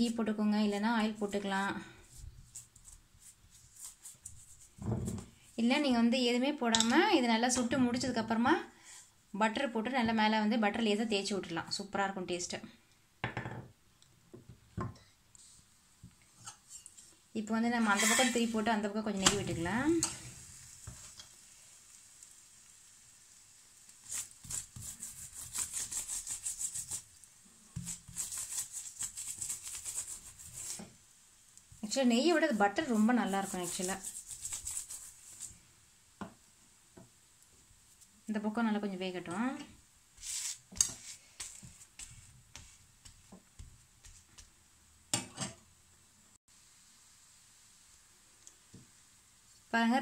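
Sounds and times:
light sizzle: 0.0 - 50.0
spoon rubbing on flatbread: 1.1 - 4.8, 17.8 - 18.7, 23.8 - 31.1, 31.8 - 35.7, 40.1 - 44.6
spatula tapping and scraping griddle: 19.2 - 21.4, 24.0 - 27.0, 27.7 - 31.0, 40.3 - 45.6.

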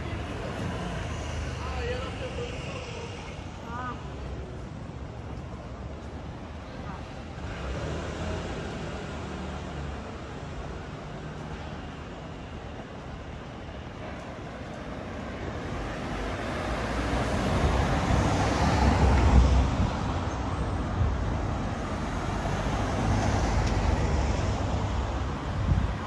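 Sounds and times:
traffic rumble: 0.0 - 26.0
vehicle passing by: 7.4 - 10.0.

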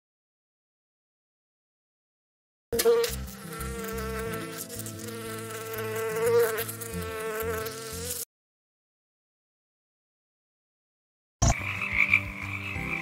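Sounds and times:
honeybees buzzing: 2.8 - 8.3.

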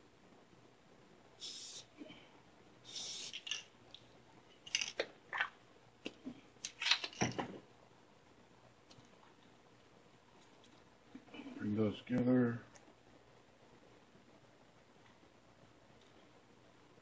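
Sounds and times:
spray hiss: 1.4 - 2.0, 2.9 - 3.5.

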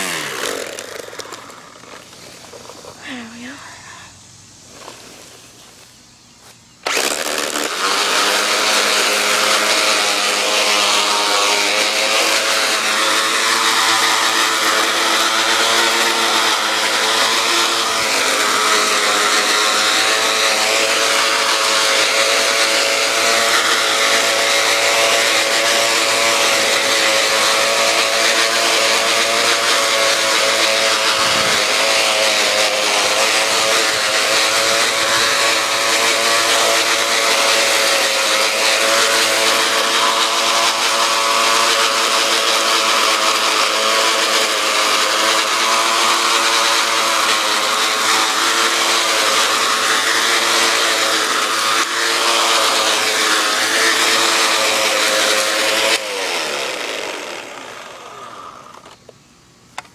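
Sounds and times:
electric string trimmer running: 0.0 - 59.2.

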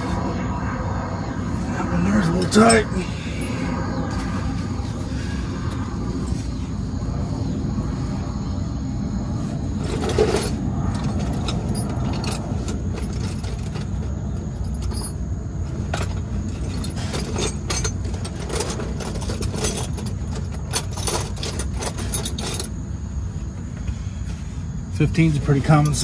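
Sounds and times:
low rumble: 0.0 - 20.4
metal tools clinking: 2.1 - 5.0, 9.8 - 22.8.

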